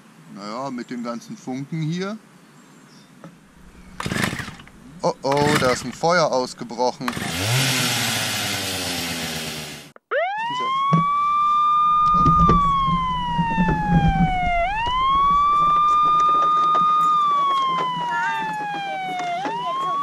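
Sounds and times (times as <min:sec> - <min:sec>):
low rumble: 0:03.4 - 0:06.6, 0:11.8 - 0:17.1
loud hissing: 0:03.5 - 0:09.9
toy siren wailing: 0:10.1 - 0:20.0.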